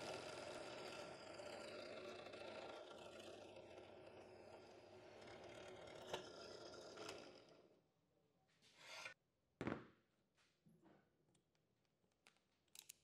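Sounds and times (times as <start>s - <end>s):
metal scrape: 8.6s - 9.2s.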